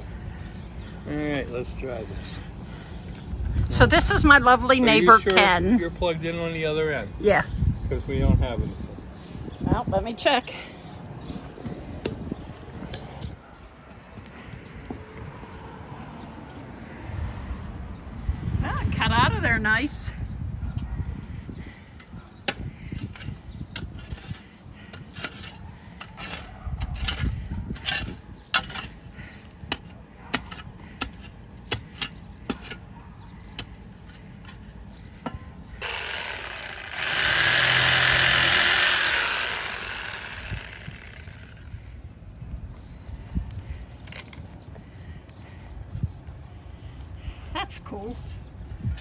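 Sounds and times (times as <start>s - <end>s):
reciprocating saw cutting root: 35.8s - 41.6s.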